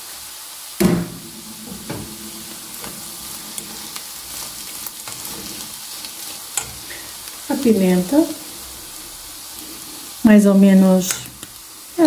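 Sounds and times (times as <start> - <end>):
food sizzling in a frying pan: 0.0 - 12.0
ringing knock: 0.8 - 5.3.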